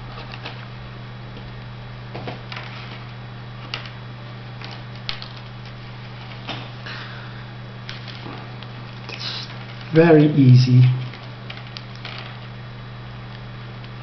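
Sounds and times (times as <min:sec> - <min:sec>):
steady low hum: 0:00.0 - 0:14.0
plastic straws clicking and rustling: 0:00.2 - 0:00.6, 0:02.5 - 0:04.0, 0:04.6 - 0:06.6, 0:07.9 - 0:10.0, 0:11.0 - 0:12.5.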